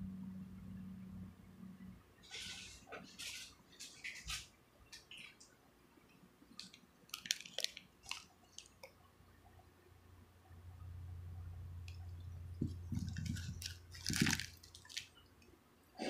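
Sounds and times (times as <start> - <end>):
plastic mesh bag crinkling: 6.6 - 8.9, 12.6 - 15.2.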